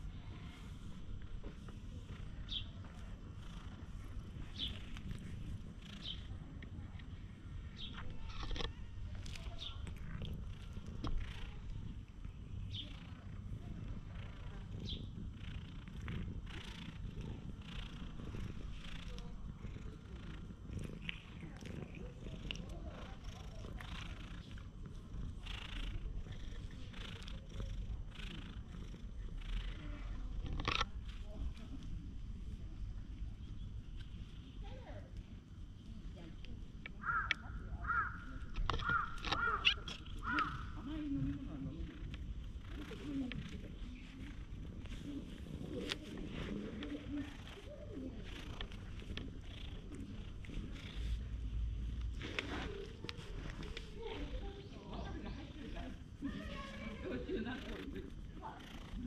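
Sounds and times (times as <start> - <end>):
cat purring: 0.0 - 59.0.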